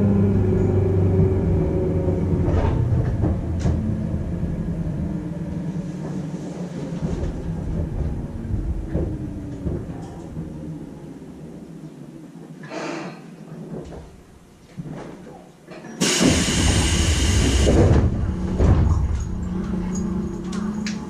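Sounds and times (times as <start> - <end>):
air hiss blast: 16.0 - 17.7
sliding doors thudding: 16.0 - 19.9.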